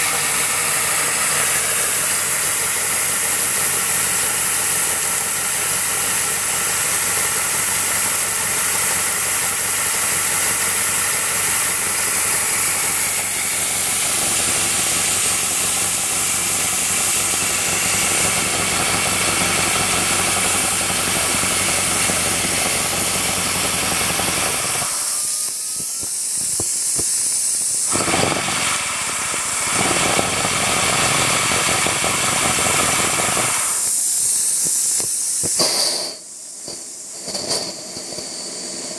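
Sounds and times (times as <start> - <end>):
model locomotive running noise: 0.0 - 38.9
steam hissing: 0.0 - 38.9.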